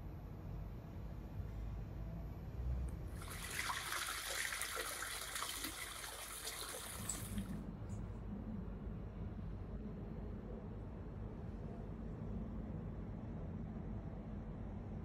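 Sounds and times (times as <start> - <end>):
low background hum: 0.0 - 15.0
water pouring and splashing: 3.2 - 7.6.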